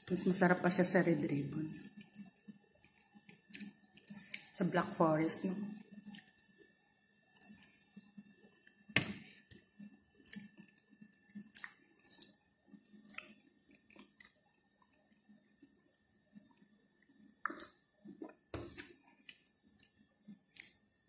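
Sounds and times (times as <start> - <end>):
person chewing food: 1.8 - 4.5, 5.8 - 15.8, 16.4 - 20.8
wet mouth clicks and smacks: 11.4 - 12.3, 13.0 - 14.3.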